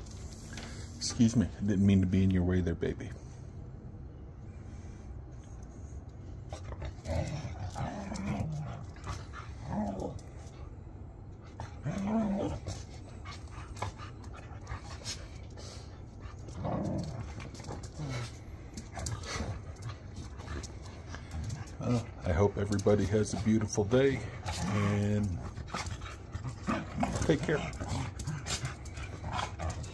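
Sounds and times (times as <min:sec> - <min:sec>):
dogs play-growling: 0:06.1 - 0:29.9.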